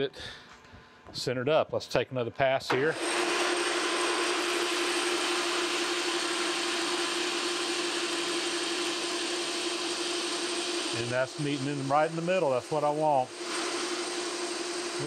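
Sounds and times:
lathe motor hum: 2.9s - 15.0s
metal lathe cutting hiss: 2.9s - 15.0s.

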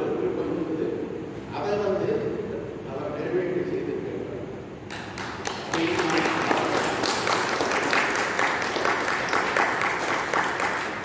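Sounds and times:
audience applause: 5.0s - 11.0s.

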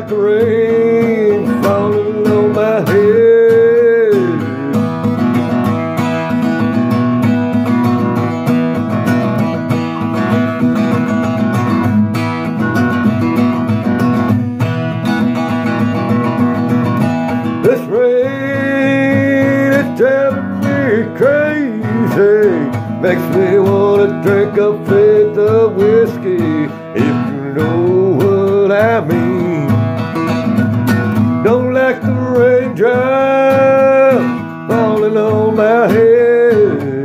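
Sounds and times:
man singing: 0.0s - 5.6s, 17.3s - 37.0s
acoustic guitar strumming: 0.0s - 37.0s.

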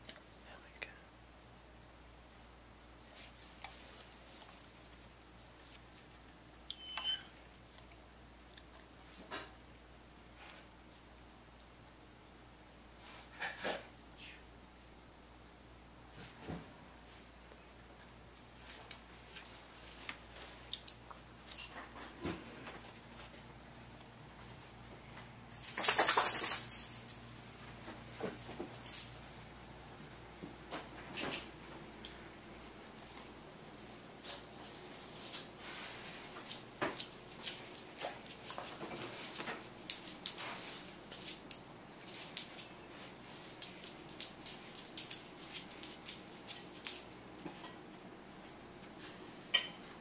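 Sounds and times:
dog collar tags jingling: 6.7s - 7.3s, 25.5s - 27.3s, 28.7s - 29.3s
sharp ringing click: 6.7s - 7.3s
dog claws clicking on tile: 18.6s - 21.7s, 36.4s - 42.8s, 43.5s - 47.8s.

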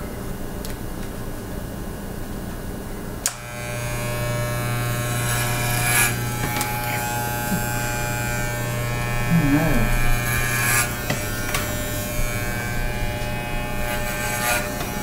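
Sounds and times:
hair clippers switch click: 3.2s - 3.6s
hair clippers buzzing: 3.2s - 15.0s.

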